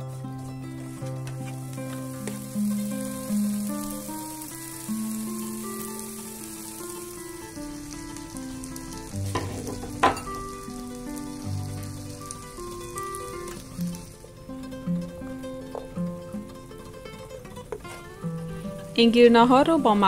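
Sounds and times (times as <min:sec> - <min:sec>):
plucked-string background music: 0:00.0 - 0:20.0
vegetables sizzling in oil: 0:00.0 - 0:20.0
spoon scraping and knocking pan: 0:09.3 - 0:10.4.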